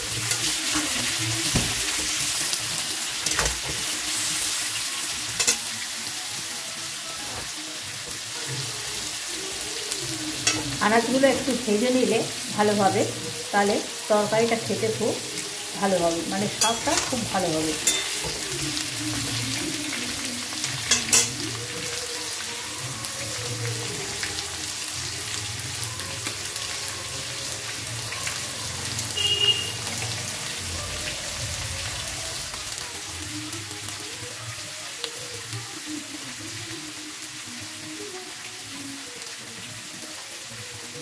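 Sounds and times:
pumpkin frying in hot oil: 0.0s - 41.0s
metal spatula clacking on pan: 17.8s - 18.5s, 20.9s - 21.4s.

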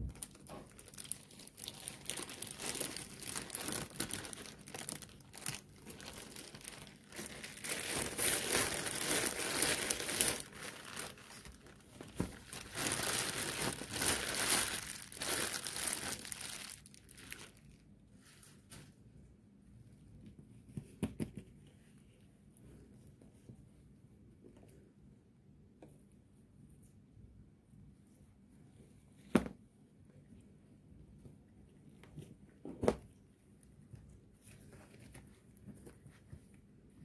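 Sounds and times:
plastic wrapping crinkling: 0.0s - 18.9s.

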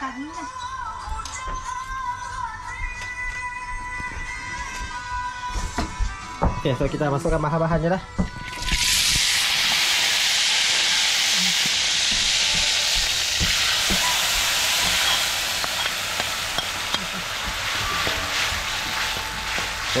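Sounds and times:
hot oil sizzling in wok: 7.3s - 20.0s
metal spatula scraping and tapping: 14.8s - 19.7s.

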